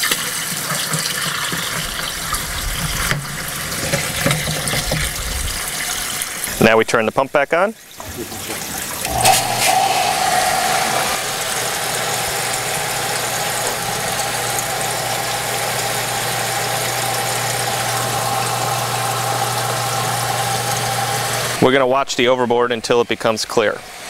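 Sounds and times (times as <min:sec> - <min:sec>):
rushing water: 0:07.8 - 0:21.6
electric pump motor humming: 0:09.0 - 0:21.6.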